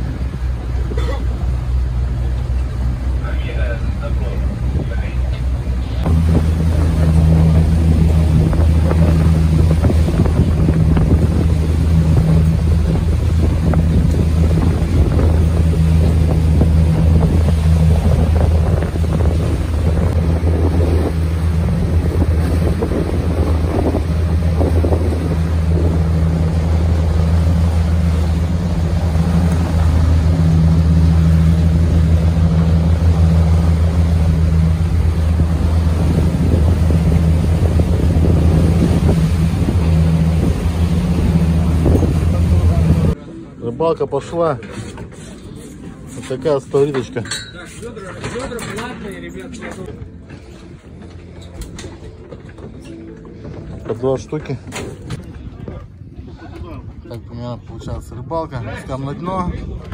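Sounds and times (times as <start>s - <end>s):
boat engine humming: 0.0s - 59.9s
wind noise on microphone: 5.9s - 27.7s, 31.5s - 43.2s, 54.6s - 59.9s.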